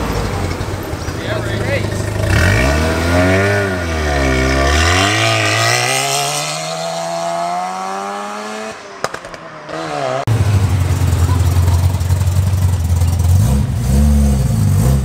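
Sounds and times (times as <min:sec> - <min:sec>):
deep loud car engine rumble: 0:00.0 - 0:08.4, 0:09.1 - 0:15.0
rotary engine accelerating: 0:00.0 - 0:15.0.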